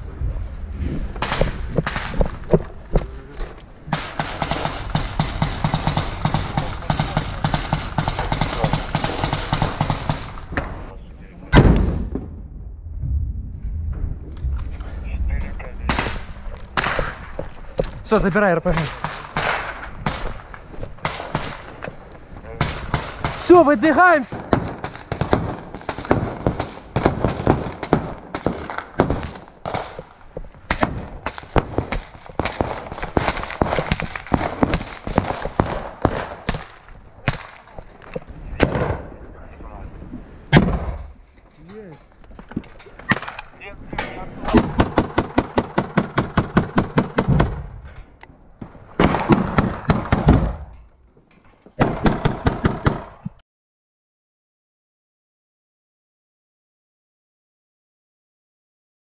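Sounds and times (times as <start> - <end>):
gunfire cracks: 1.2 - 2.4, 3.9 - 10.8, 11.5 - 12.4, 15.8 - 17.4, 18.7 - 21.7, 22.6 - 30.1, 30.7 - 37.8, 38.6 - 39.1, 40.5 - 41.1, 43.1 - 43.5, 49.0 - 50.7
automatic gunfire bursts: 3.9 - 10.3.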